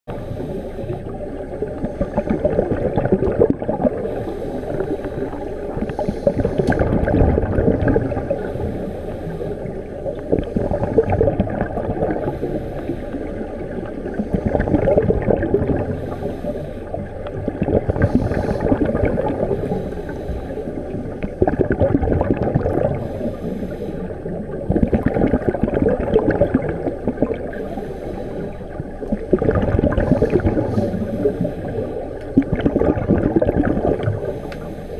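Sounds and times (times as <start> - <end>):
regulator bubbles gurgling underwater: 0.1 - 34.9.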